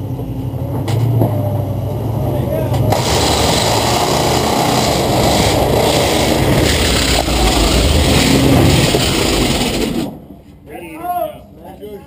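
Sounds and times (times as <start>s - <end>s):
engine revving hard: 2.9s - 10.1s
tyres spinning on rock: 3.0s - 10.2s.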